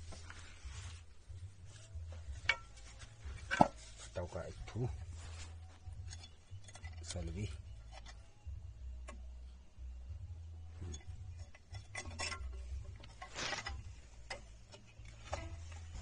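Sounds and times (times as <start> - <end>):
metal scrape: 10.7 - 16.0.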